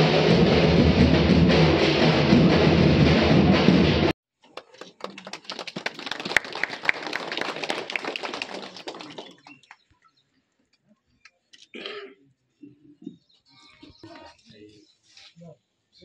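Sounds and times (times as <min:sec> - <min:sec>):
people clapping: 0:04.4 - 0:09.9.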